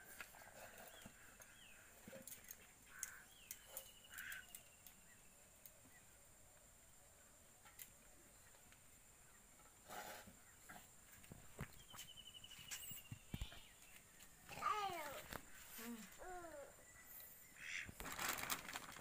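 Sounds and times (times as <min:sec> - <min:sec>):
faint bird chirps: 0:00.3 - 0:06.2, 0:11.6 - 0:17.9.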